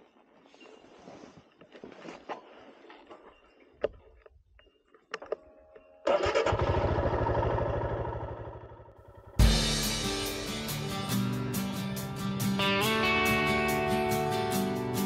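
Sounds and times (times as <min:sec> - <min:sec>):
motorcycle engine starting and running: 0:06.0 - 0:10.0
guitar music: 0:09.4 - 0:15.0.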